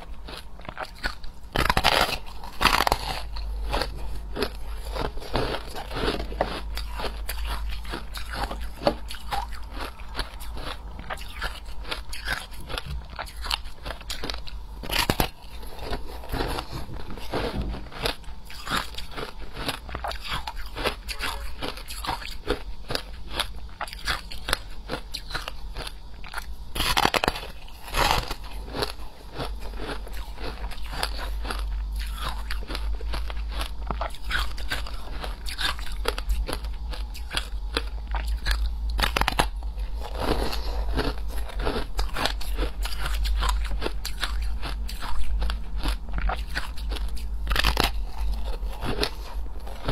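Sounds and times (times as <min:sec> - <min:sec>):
person crunching ice: 0:00.0 - 0:49.9.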